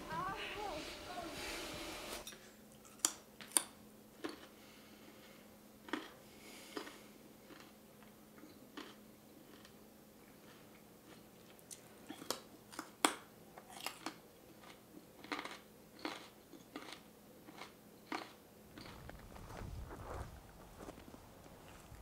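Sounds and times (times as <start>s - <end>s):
low steady hum: 0.0s - 3.0s, 18.0s - 22.0s.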